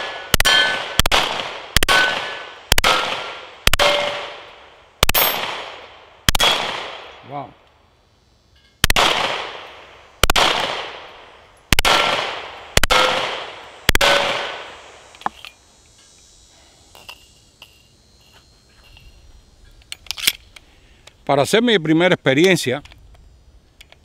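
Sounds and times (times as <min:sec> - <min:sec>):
pistol shots echoing: 0:00.0 - 0:07.2, 0:08.8 - 0:14.8
pistol handling clicks: 0:19.8 - 0:21.2.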